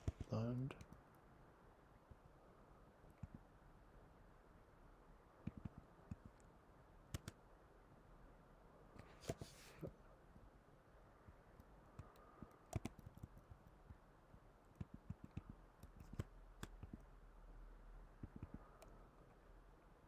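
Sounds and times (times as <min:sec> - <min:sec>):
keystrokes on computer keyboard: 0:00.0 - 0:01.2, 0:03.1 - 0:03.5, 0:05.4 - 0:06.5, 0:07.1 - 0:07.4, 0:11.3 - 0:17.1, 0:18.2 - 0:19.4.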